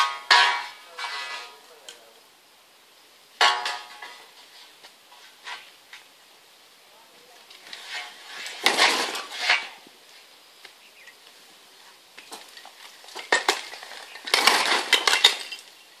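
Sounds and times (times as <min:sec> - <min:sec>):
bricks clattering onto rubble: 0:00.0 - 0:01.5, 0:07.7 - 0:09.8, 0:12.2 - 0:15.8.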